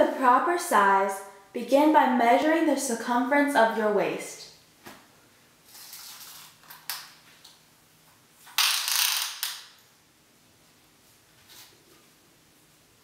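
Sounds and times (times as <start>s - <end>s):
tape measure being pulled out: 5.7s - 7.1s.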